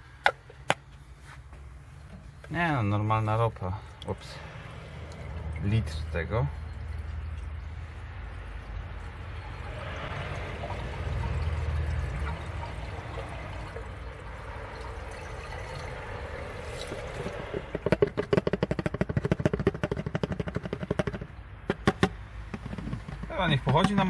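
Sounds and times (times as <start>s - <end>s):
liquid trickling into engine: 1.8s - 18.4s.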